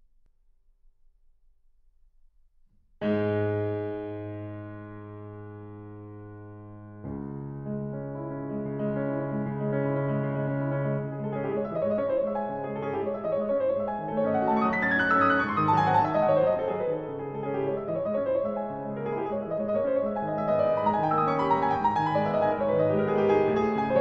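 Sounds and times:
solo grand piano: 3.0 - 24.0.

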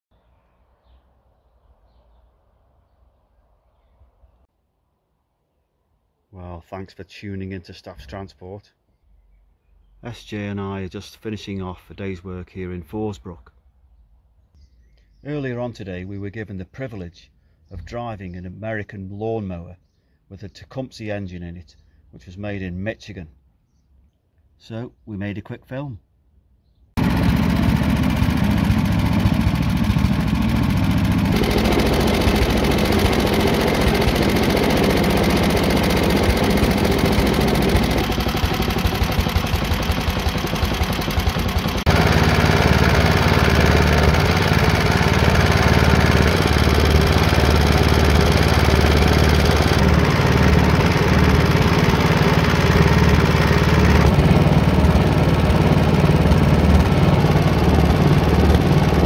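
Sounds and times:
lawn mower engine running: 27.0 - 59.0.

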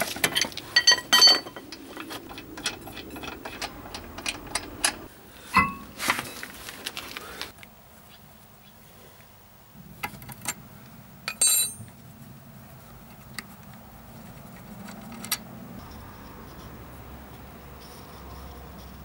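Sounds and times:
short ringing metal clink: 11.3 - 11.9.

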